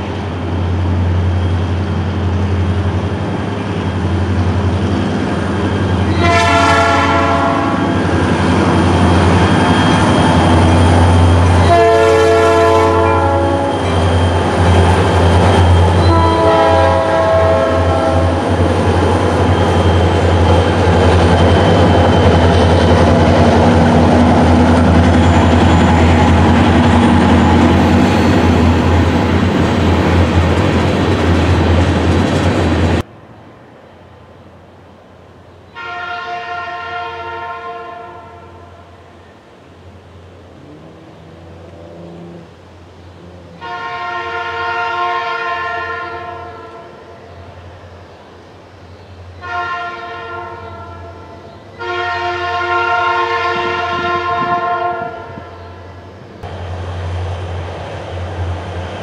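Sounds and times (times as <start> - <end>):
freight cars rumbling past: 0.0 - 34.4, 39.6 - 44.6, 56.2 - 59.0
locomotive air horn blasts: 6.1 - 8.0, 11.4 - 14.2, 15.9 - 18.4, 35.7 - 39.0, 43.6 - 47.2, 49.4 - 55.8.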